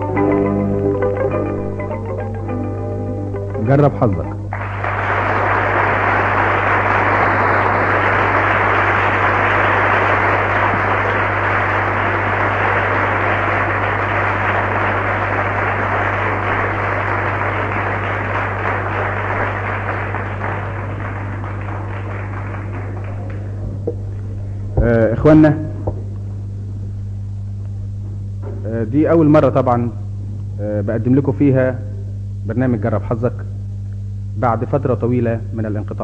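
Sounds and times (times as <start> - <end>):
low hum: 0.0 - 36.0
audience applauding: 4.5 - 25.4.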